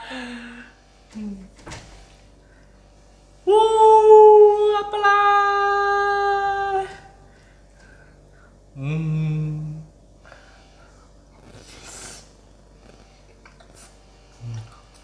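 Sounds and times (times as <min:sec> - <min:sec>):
person singing high note: 0:03.5 - 0:07.2.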